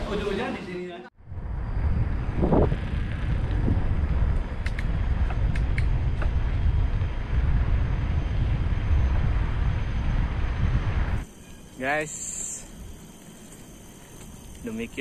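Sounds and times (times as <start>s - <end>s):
wind buffeting microphone: 1.2s - 11.7s.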